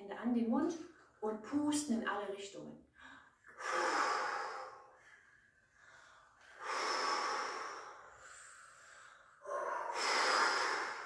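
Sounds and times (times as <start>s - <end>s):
blowing through cupped hands: 3.5s - 5.0s, 6.5s - 11.0s.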